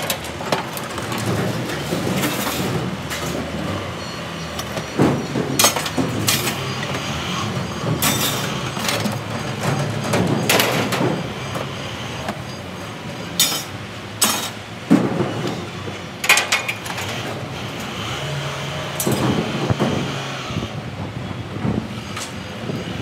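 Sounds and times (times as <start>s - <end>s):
scrap metal clanging onto concrete: 0.0s - 17.9s.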